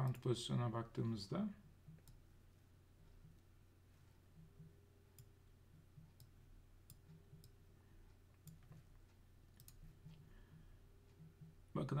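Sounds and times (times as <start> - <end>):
low steady hum: 0.0 - 12.0
computer mouse clicks: 6.0 - 7.6, 8.3 - 10.2.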